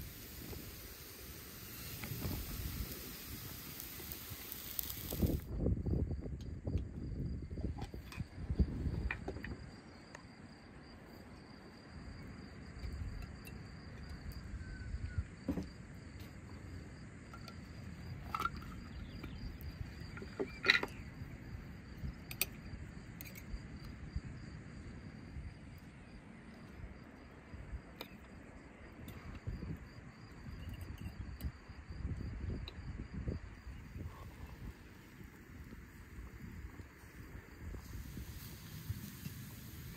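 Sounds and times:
insects chirring: 0.0s - 39.9s.

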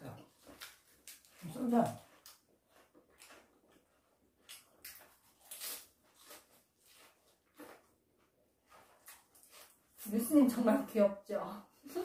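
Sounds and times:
crunchy food chewing: 0.3s - 10.1s.

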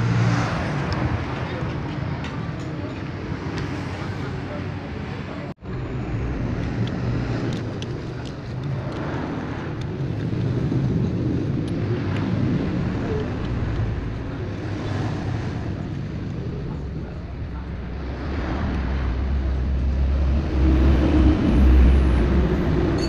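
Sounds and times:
steady low rumble: 5.5s - 23.0s.

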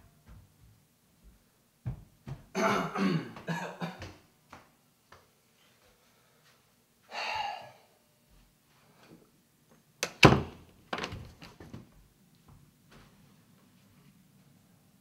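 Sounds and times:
person coughing: 2.6s - 4.1s
person clearing throat: 2.6s - 4.2s.

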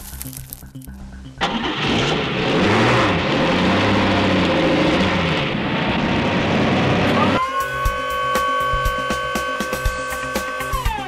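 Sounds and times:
heavy vehicle engine revving: 1.4s - 7.4s.

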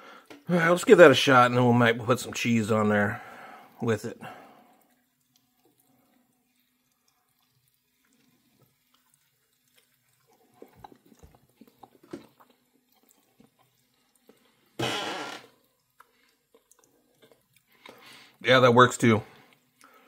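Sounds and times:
person biting and chewing: 6.6s - 18.1s.

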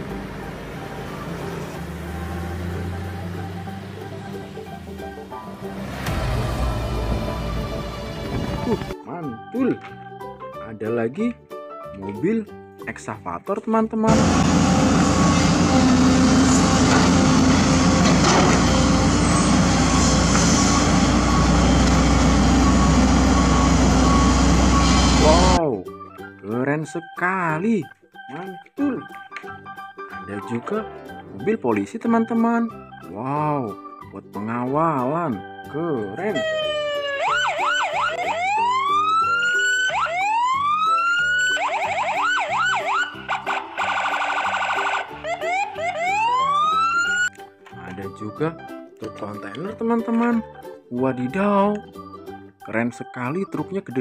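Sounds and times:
excavator diesel engine droning: 0.0s - 8.9s, 14.1s - 25.6s
electronic police siren: 20.6s - 25.6s, 36.1s - 47.3s.

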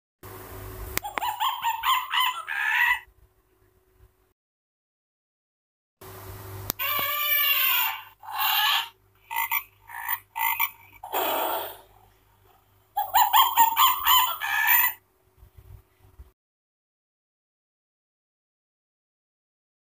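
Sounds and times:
faint electronic hum: 0.2s - 4.3s, 6.0s - 16.3s
toy speaker playing animal calls: 1.0s - 3.1s, 6.8s - 11.9s, 13.0s - 15.0s.

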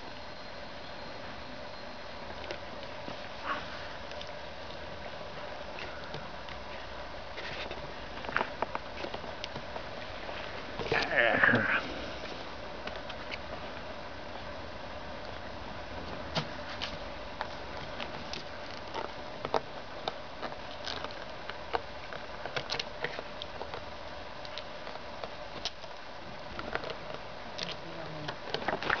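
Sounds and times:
steady hiss: 0.0s - 29.0s.

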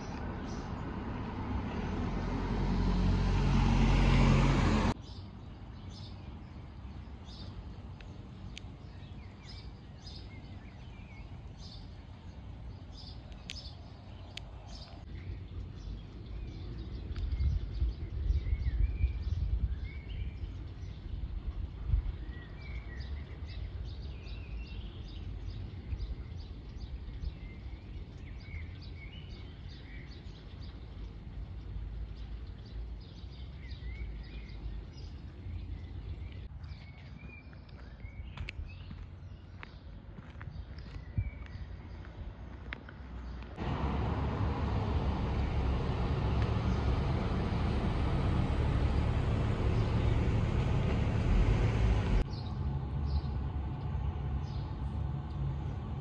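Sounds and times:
small birds chirping: 0.0s - 2.3s, 4.9s - 56.0s
wind rumble on microphone: 13.0s - 37.4s, 40.2s - 42.8s.

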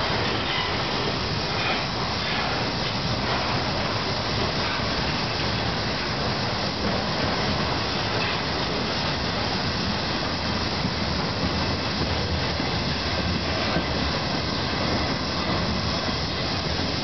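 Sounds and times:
train wheels rolling on rails: 0.0s - 17.0s.

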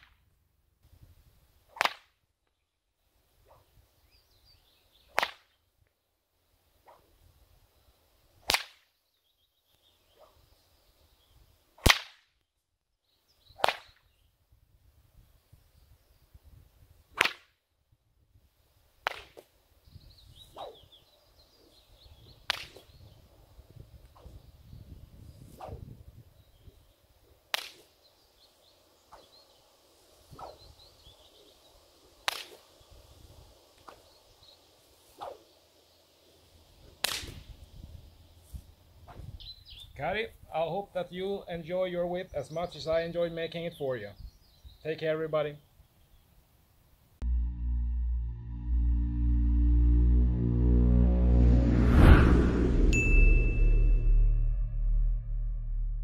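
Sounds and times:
whip cracking: 1.7s - 2.2s, 5.1s - 5.5s, 6.8s - 7.1s, 8.4s - 8.9s, 11.8s - 12.3s, 13.6s - 14.0s, 17.1s - 17.6s, 19.0s - 19.5s, 20.5s - 20.8s, 22.5s - 22.9s, 25.6s - 25.9s, 27.5s - 28.0s, 29.1s - 29.3s, 30.3s - 30.6s, 32.2s - 32.8s, 35.1s - 35.4s, 37.0s - 37.6s
birds chirping faintly: 39.3s - 46.7s.

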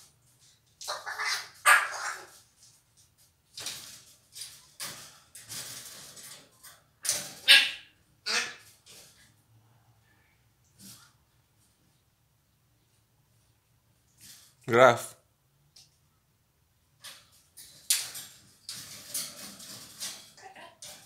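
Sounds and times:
parrot squawking: 0.9s - 2.3s, 7.4s - 8.7s.

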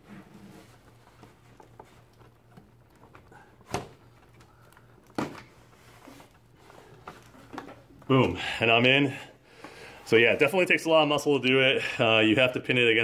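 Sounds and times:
faint rubbing and handling: 0.0s - 9.0s.

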